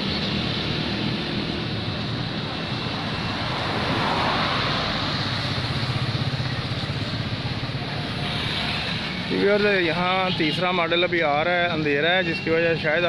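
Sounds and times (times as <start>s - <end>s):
car passing: 0.0s - 9.7s
vehicle driving on road: 0.0s - 13.0s.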